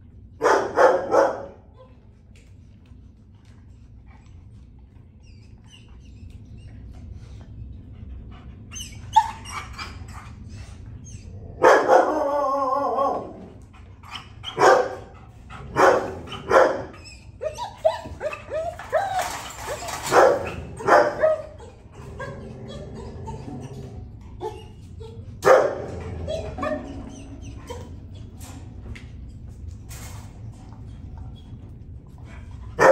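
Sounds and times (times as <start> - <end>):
dog barking: 0.4 - 1.6, 11.6 - 12.2, 14.6 - 15.1, 15.7 - 16.9, 20.1 - 21.5, 25.4 - 26.0.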